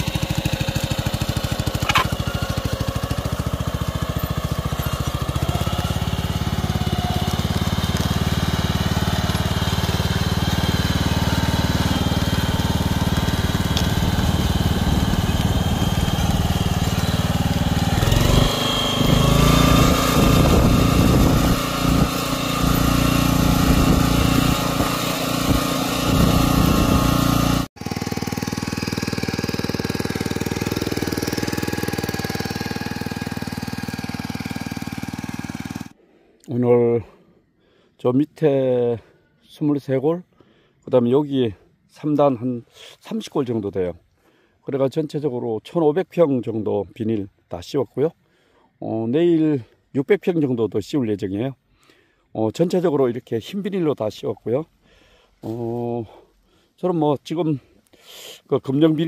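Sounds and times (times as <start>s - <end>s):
small cultivator engine running: 0.0s - 36.0s.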